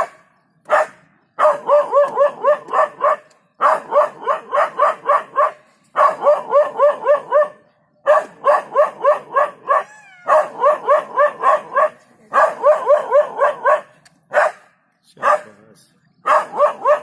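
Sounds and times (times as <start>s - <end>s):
dog barking rapidly: 0.0s - 15.6s, 16.2s - 17.0s
dog whining: 9.7s - 11.3s.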